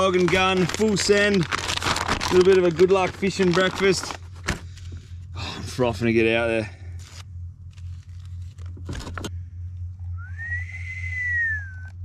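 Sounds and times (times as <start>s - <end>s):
paper rustling: 0.0s - 5.2s, 6.9s - 9.3s
low hum: 0.0s - 12.0s
whistle-like tone: 10.1s - 12.0s.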